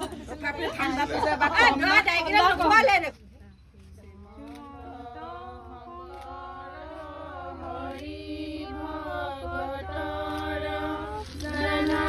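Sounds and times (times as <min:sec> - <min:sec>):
women singing a slow chant: 0:04.2 - 0:12.0.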